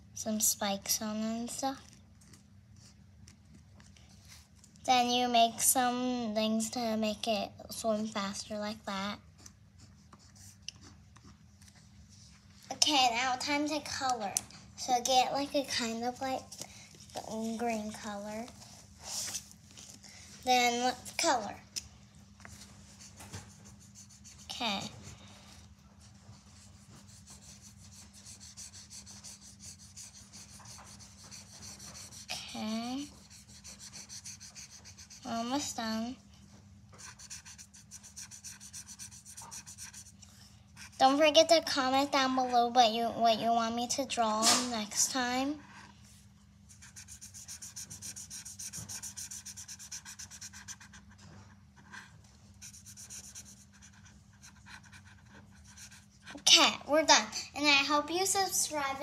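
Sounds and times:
marker scribbling on paper: 9.4 - 11.4, 22.9 - 25.2, 26.0 - 36.0, 37.0 - 40.2, 46.7 - 56.5.

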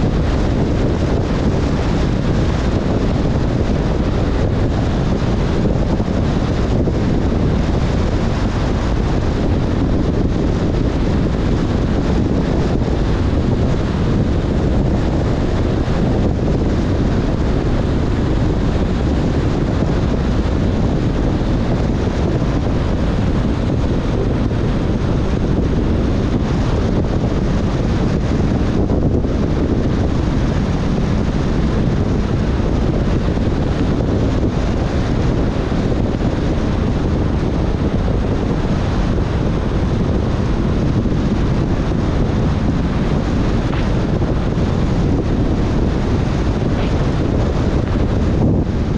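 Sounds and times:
car road noise on wet road: 0.0 - 48.9
heavy rain: 0.0 - 48.9
wind buffeting microphone: 0.0 - 48.9.

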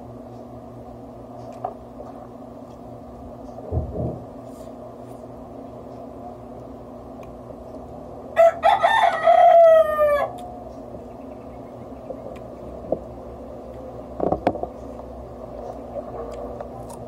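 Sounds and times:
rooster crowing: 8.4 - 10.6.

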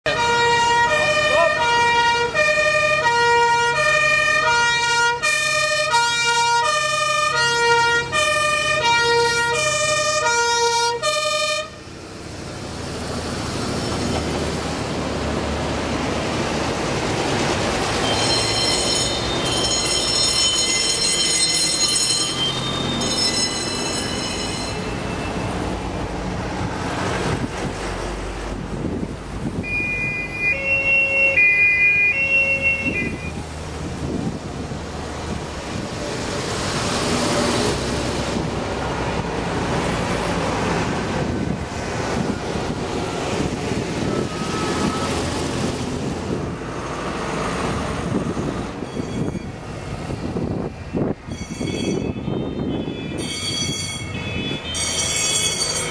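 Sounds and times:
fire engines driving past: 0.0 - 55.9
two-tone fire engine horn: 0.1 - 11.9, 29.6 - 33.4, 51.8 - 55.6.

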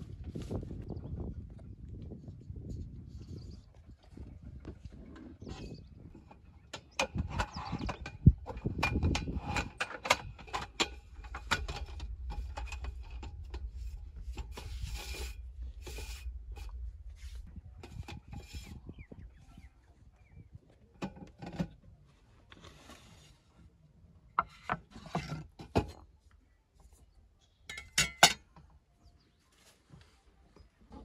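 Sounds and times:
knocks clicks and rubbing: 6.8 - 18.8
low steady rumble: 7.2 - 20.6.

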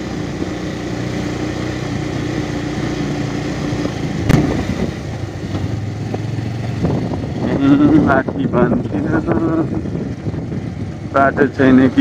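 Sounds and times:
motorcycle engine running: 0.0 - 12.0
short thump: 4.2 - 6.3.

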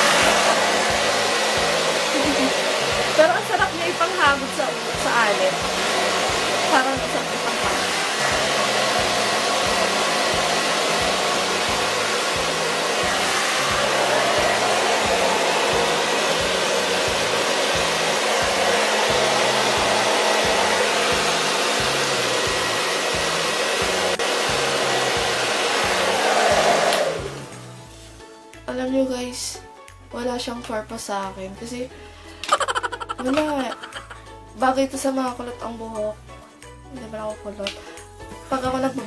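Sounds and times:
hair dryer running: 0.0 - 28.0, 32.4 - 34.4.

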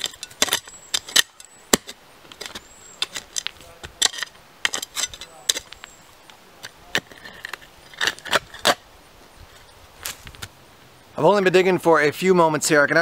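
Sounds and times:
shovel crunching and scraping dirt: 0.0 - 6.0, 6.6 - 8.9, 9.5 - 10.5.

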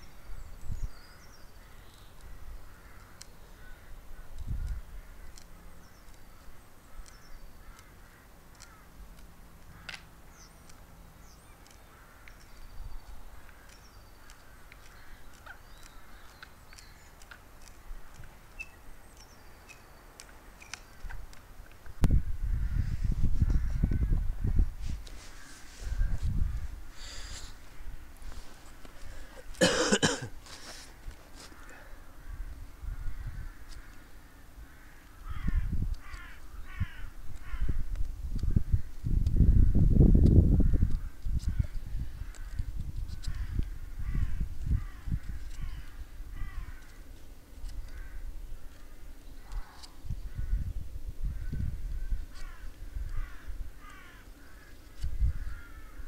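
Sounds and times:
small birds chirping: 0.0 - 29.6
crow cawing: 2.6 - 4.3, 7.6 - 9.0, 11.8 - 12.4, 31.4 - 37.8, 43.2 - 47.0, 47.8 - 48.3, 52.3 - 56.0.

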